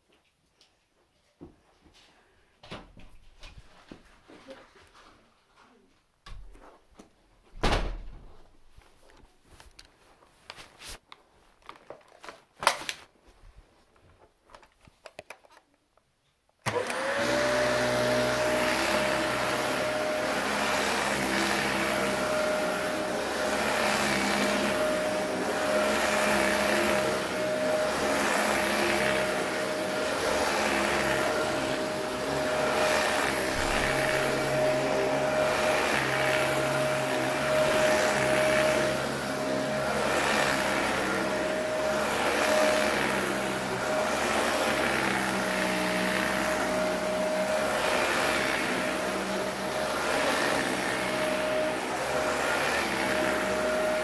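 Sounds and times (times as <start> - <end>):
vacuum cleaner motor whine: 16.6 - 54.0.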